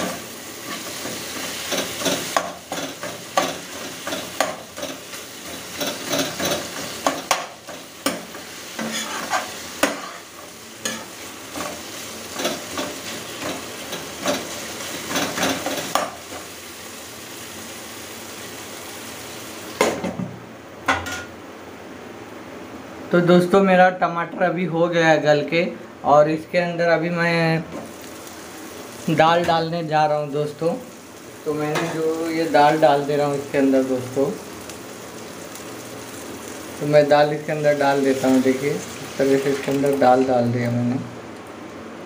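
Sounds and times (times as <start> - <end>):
masala sizzling in a pan: 0.0 - 20.0, 27.7 - 42.0
spatula scraping a frying pan: 8.0 - 11.8.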